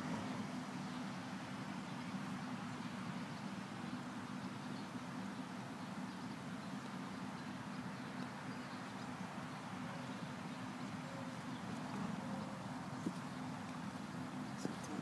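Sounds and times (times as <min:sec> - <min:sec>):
continuous low hum: 0:00.0 - 0:15.0.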